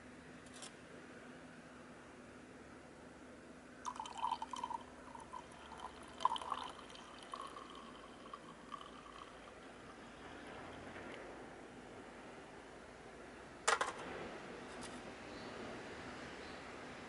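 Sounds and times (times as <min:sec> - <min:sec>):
coffee pouring into a cup: 0:03.8 - 0:11.1.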